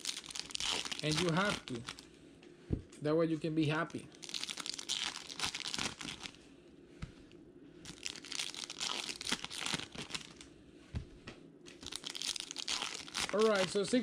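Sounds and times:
foil wrapper tearing and crinkling: 0:00.0 - 0:02.0, 0:04.2 - 0:06.4, 0:07.8 - 0:10.5, 0:11.7 - 0:14.0.

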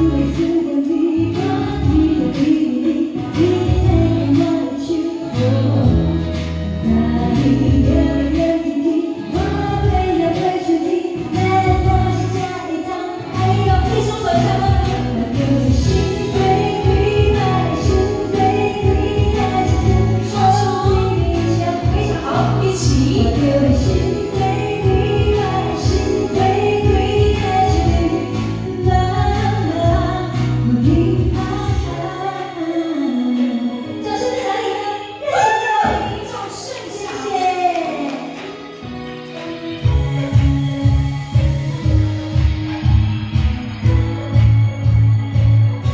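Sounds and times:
woman singing a pop ballad: 0:00.0 - 0:38.9, 0:39.5 - 0:45.9
backing music with steady beat: 0:00.0 - 0:45.9
backing track with bass beat: 0:39.8 - 0:45.9.

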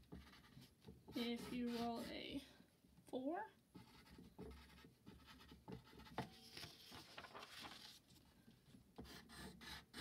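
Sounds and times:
pen scratching on paper: 0:00.0 - 0:02.2, 0:03.7 - 0:06.2, 0:09.0 - 0:10.0.

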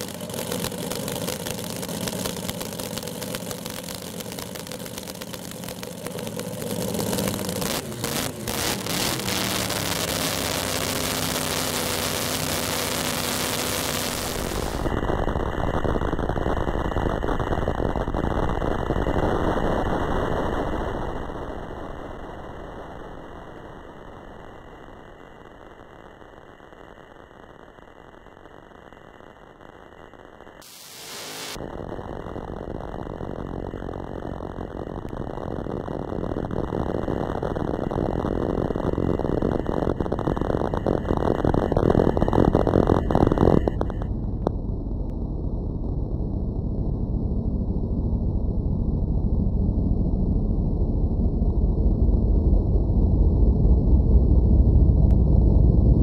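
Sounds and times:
race car engines rumbling: 0:00.0 - 0:15.0
drag racing engine running rough: 0:00.0 - 0:25.2, 0:30.7 - 0:45.1.

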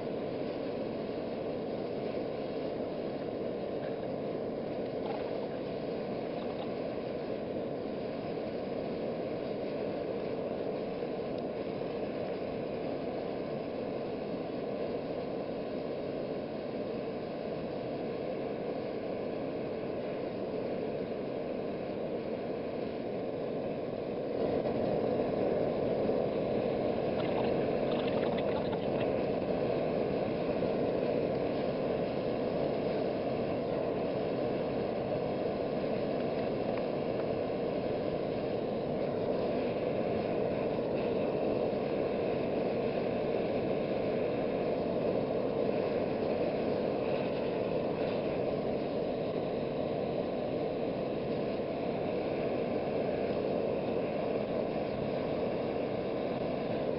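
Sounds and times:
forge air rushing: 0:27.0 - 0:29.5.

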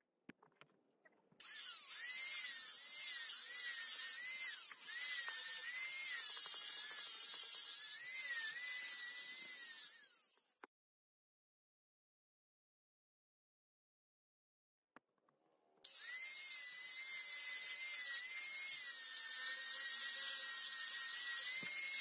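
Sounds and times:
angle grinder sanding steel: 0:01.4 - 0:10.4, 0:15.9 - 0:22.0.

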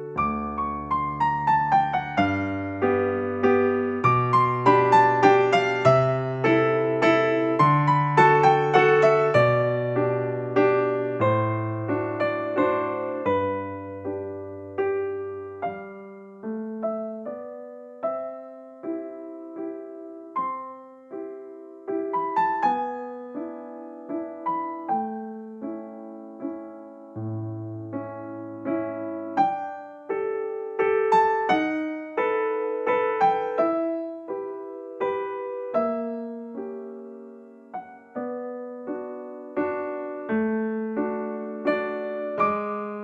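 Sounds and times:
slow piano melody: 0:00.0 - 0:43.0.

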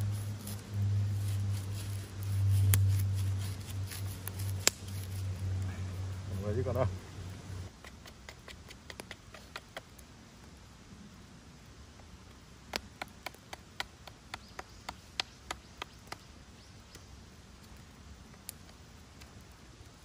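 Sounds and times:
knife whittling wood clicks: 0:07.8 - 0:10.0.

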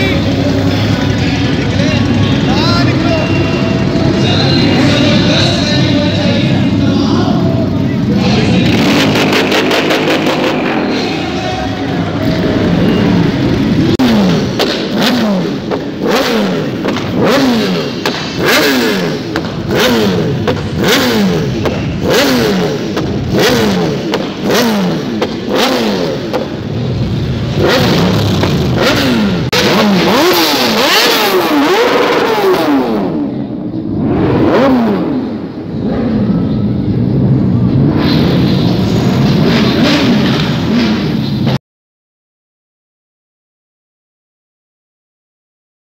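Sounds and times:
motorcycle engine revving: 0:00.0 - 0:41.6
sharp exhaust cracks: 0:07.7 - 0:32.8.

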